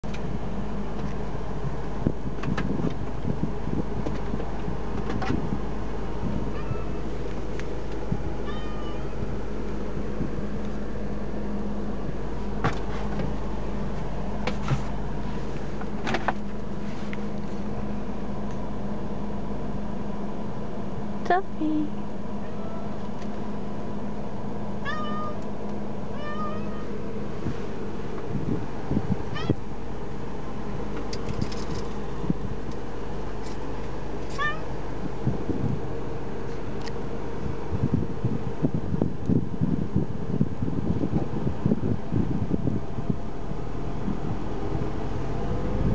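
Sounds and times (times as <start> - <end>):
car engine and road noise: 0.0 - 45.9
cat meowing: 6.5 - 7.1, 8.4 - 9.2, 22.4 - 23.0, 24.8 - 25.4, 26.1 - 26.9, 29.3 - 29.6, 34.3 - 34.7.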